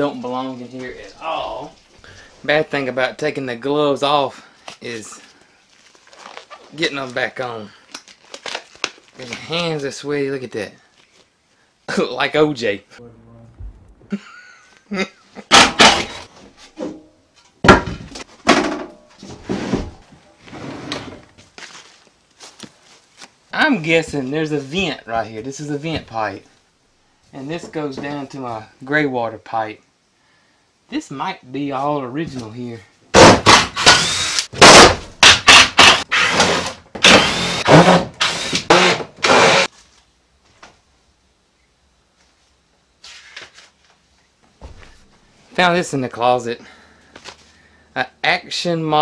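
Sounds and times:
loud wooden knocks: 15.5 - 16.3, 17.6 - 19.0, 33.2 - 34.0, 34.6 - 39.6
cordless drill whirring: 33.8 - 34.5, 35.2 - 39.7.

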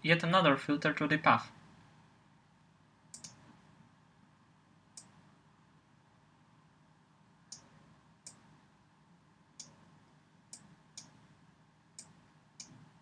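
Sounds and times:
faint low room hum: 0.0 - 13.0
computer mouse button clicking: 3.1 - 3.4.

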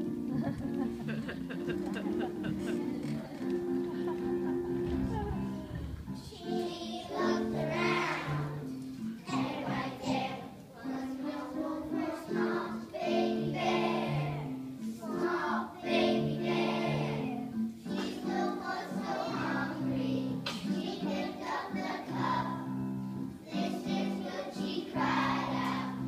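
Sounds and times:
instrumental accompaniment: 0.0 - 26.0
children singing: 6.2 - 26.0.

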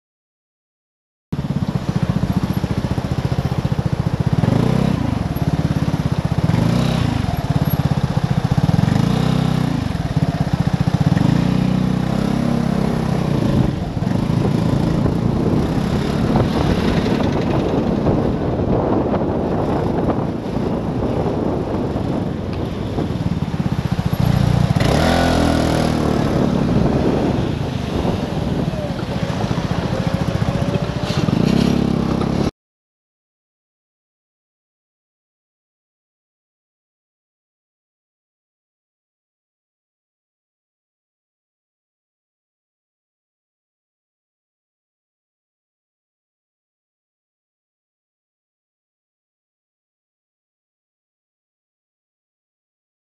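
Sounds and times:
scooter engine running: 1.4 - 32.5.

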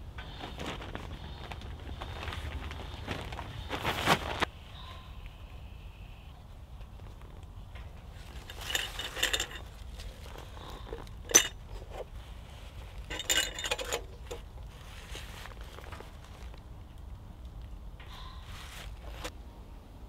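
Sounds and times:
lantern frame rattling and clinking: 8.2 - 12.2, 12.8 - 14.8.

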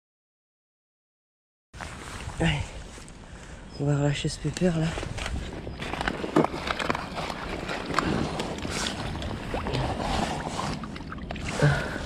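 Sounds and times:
handling knocks and rustles: 4.5 - 11.4
water sloshing and splashing: 4.8 - 12.0.

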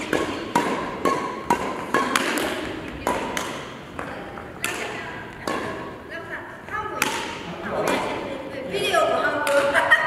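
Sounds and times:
rackets hitting shuttlecocks: 0.0 - 8.5, 9.3 - 9.9.

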